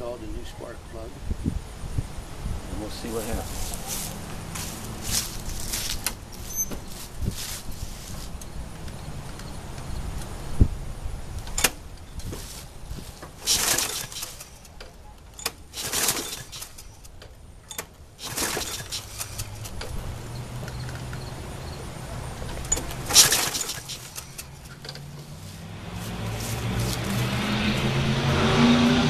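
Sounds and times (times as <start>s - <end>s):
recoil starter cord rattling: 11.4s - 20.0s, 22.4s - 25.4s.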